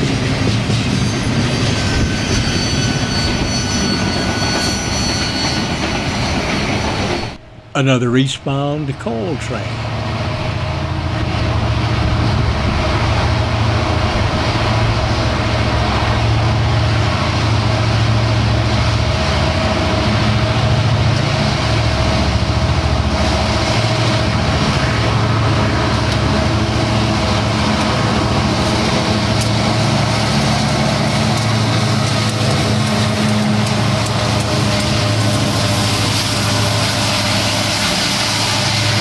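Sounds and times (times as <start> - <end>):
train rumble: 0.0 - 39.0
diesel engine drone: 7.4 - 39.0.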